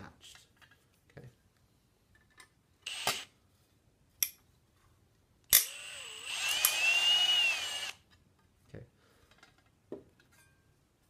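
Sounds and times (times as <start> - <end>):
cordless drill whining: 2.8 - 3.3, 5.6 - 8.0
drill trigger bursts: 2.9 - 3.3, 5.6 - 8.0.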